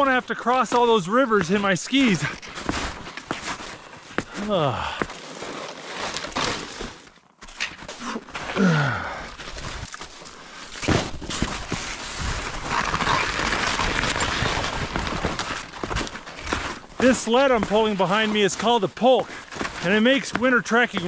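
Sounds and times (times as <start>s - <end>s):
skis scraping over snow: 0.2s - 3.8s, 11.5s - 21.0s
person grunting: 4.3s - 5.1s, 8.6s - 9.3s.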